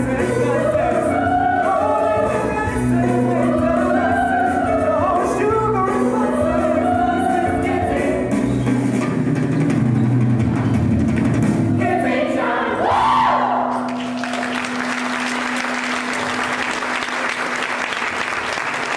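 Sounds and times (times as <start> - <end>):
group singing with backing music: 0.0 - 9.0, 11.8 - 13.8
audience applause: 13.9 - 18.9.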